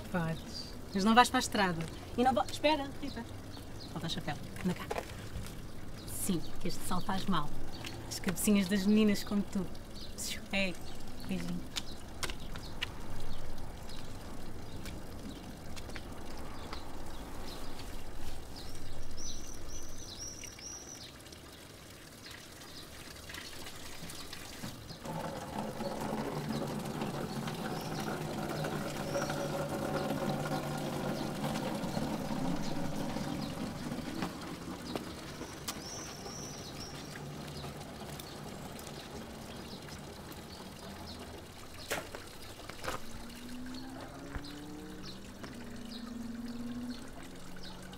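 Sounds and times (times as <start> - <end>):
water pouring into plastic bottle: 10.8 - 47.9.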